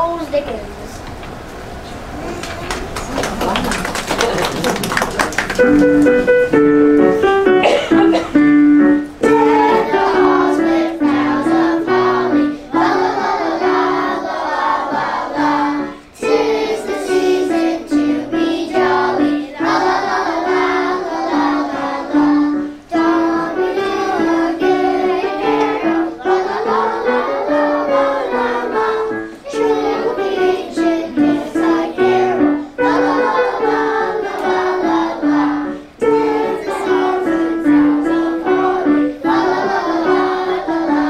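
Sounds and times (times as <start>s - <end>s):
instrumental accompaniment: 5.4s - 41.0s
children singing in unison: 9.2s - 41.0s.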